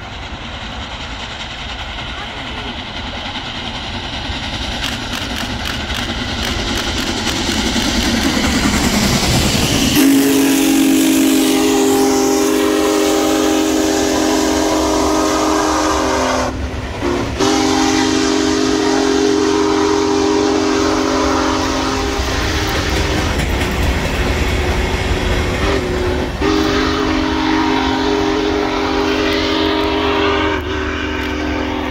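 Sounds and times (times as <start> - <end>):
steam train rolling past: 0.0 - 31.9
steam whistle blast: 9.8 - 23.0, 25.6 - 31.9.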